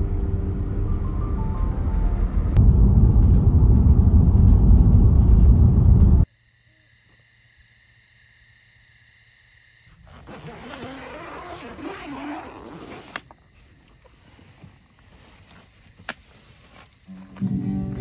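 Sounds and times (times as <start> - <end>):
rush of noise with low tones: 0.0 - 6.2
insects chirping: 5.8 - 18.0.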